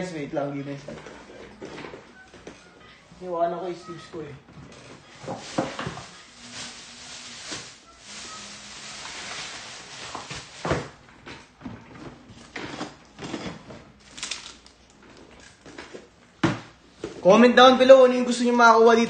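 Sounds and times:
rustling: 4.8 - 11.0.

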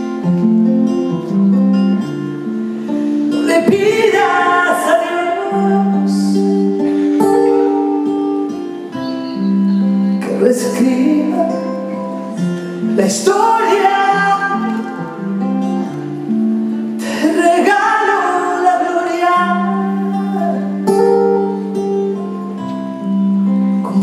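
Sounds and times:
strummed acoustic guitar: 0.0 - 24.0
woman singing: 3.3 - 8.6, 9.8 - 15.4, 17.0 - 21.8.

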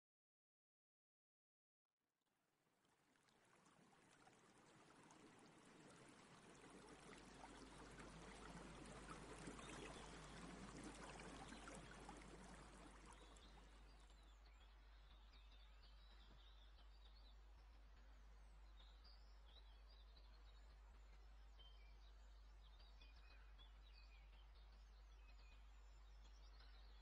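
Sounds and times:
faint running water: 2.7 - 17.8.

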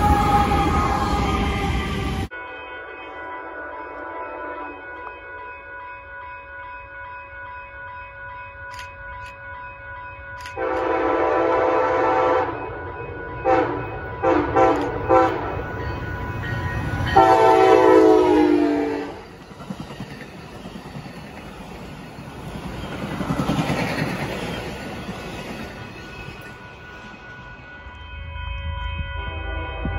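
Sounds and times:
train wheels rumbling on rails: 0.0 - 2.3, 12.4 - 29.9
train horn blasts: 0.0 - 5.2, 10.5 - 12.8, 13.4 - 15.6, 17.1 - 19.3, 27.9 - 29.9.

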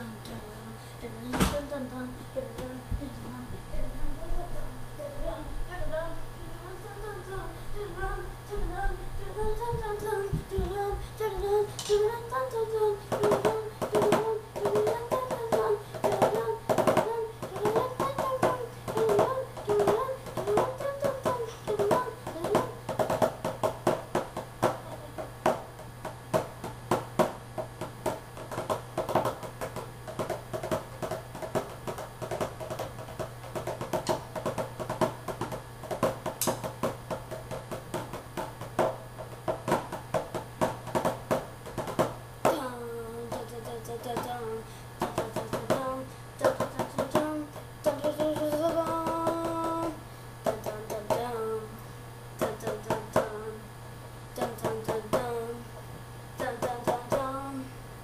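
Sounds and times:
song with singing and percussion: 5.2 - 25.6, 42.4 - 51.8, 54.4 - 57.6.

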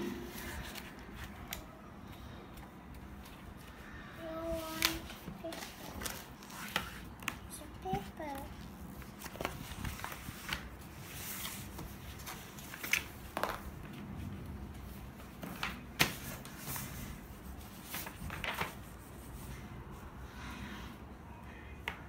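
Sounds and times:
paper rustling: 0.2 - 1.7, 4.6 - 14.0, 15.0 - 19.4.

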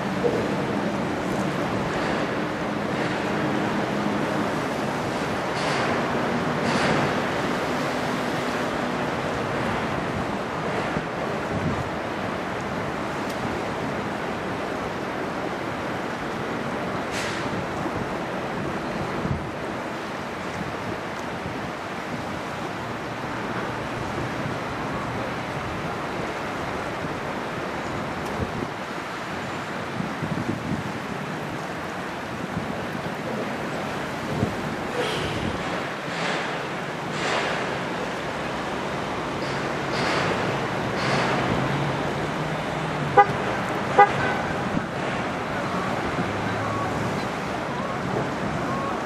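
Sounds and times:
wind: 0.0 - 49.0
wind on microphone: 6.5 - 13.6, 17.5 - 22.6, 28.0 - 28.9, 29.8 - 36.5
short horn toots: 43.2 - 43.4.

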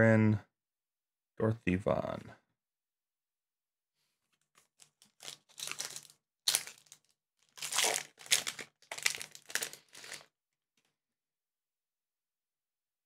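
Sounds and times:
card pack wrapper crinkling: 4.4 - 10.3.

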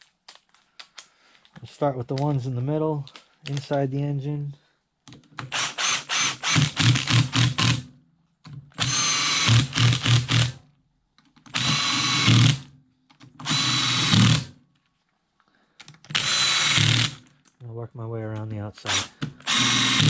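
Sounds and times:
power driver whining: 11.5 - 12.6, 13.4 - 14.5, 16.1 - 17.2, 18.8 - 20.0.

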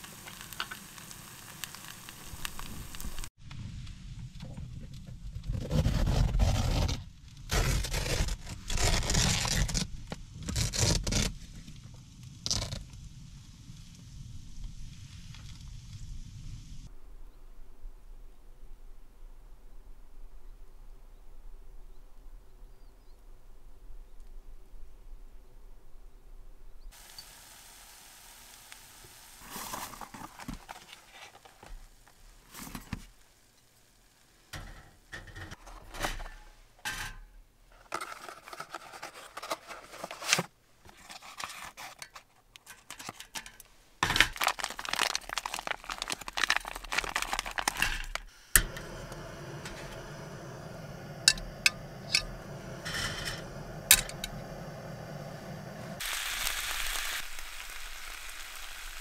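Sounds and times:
frying hiss: 0.0 - 4.4, 13.0 - 16.9, 26.9 - 35.6, 44.1 - 59.0
plastic packaging crinkling: 29.4 - 32.8, 37.8 - 48.3.

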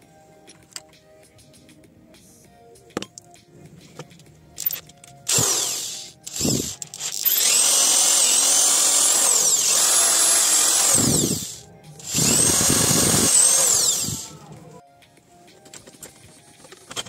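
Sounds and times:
electric drill boring into metal: 4.6 - 14.5.

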